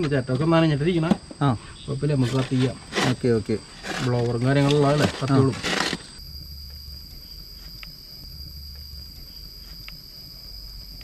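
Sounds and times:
faint low hum: 0:00.0 - 0:11.0
night insects trilling: 0:00.0 - 0:11.0
faint ticks: 0:06.2 - 0:11.0.

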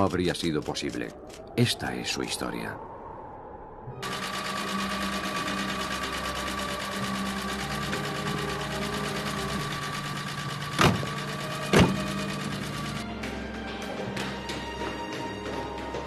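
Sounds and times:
car engine idling: 0:04.0 - 0:13.0
car door thumps: 0:10.8 - 0:11.1, 0:11.7 - 0:12.1.

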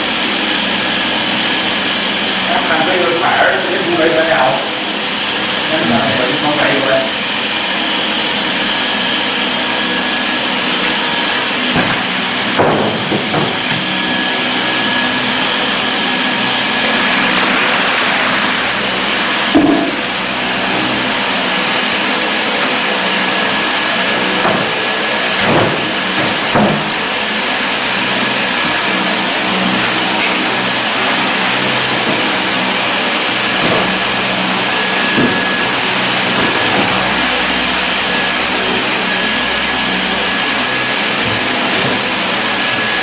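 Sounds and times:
workshop machinery whirring: 0:00.0 - 0:43.0
knocks and clanks: 0:11.7 - 0:14.0, 0:19.5 - 0:20.0, 0:25.4 - 0:27.0.

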